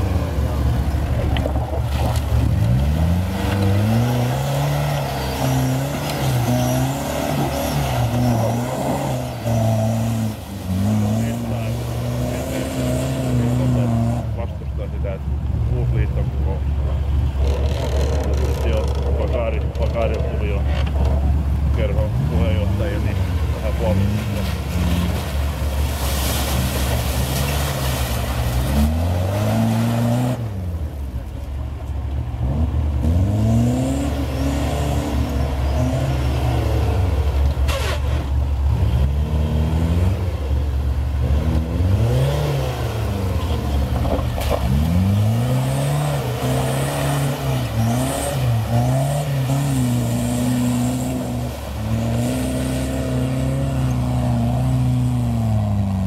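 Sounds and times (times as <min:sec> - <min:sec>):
off-road engines revving: 0:00.0 - 0:56.0.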